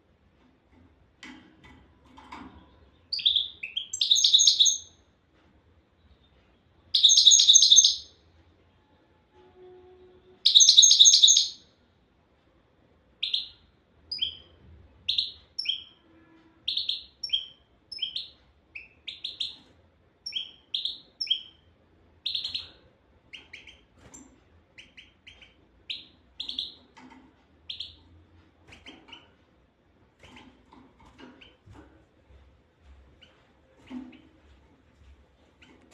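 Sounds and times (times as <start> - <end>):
finch singing: 3.0 - 4.9, 6.9 - 8.1, 10.4 - 11.6, 13.2 - 14.5, 15.1 - 16.0, 16.6 - 19.6, 20.2 - 21.6, 22.2 - 24.2, 24.8 - 26.9, 27.7 - 28.0.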